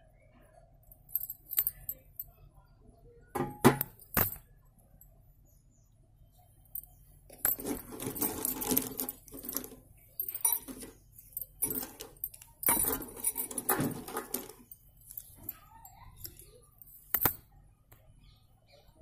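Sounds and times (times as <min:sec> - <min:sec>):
bangles jingling: 0:00.9 - 0:02.3, 0:06.7 - 0:17.5
slate pencils clattering: 0:07.3 - 0:17.4.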